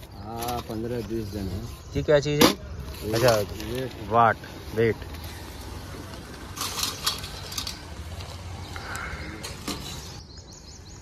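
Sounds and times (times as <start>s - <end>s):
metal scale pans and chains clinking: 6.5s - 8.0s.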